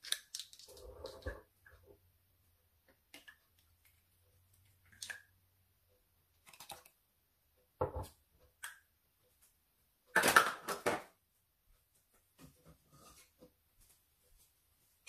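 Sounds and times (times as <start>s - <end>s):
plastic spoons clicking and rattling: 0.0s - 1.2s.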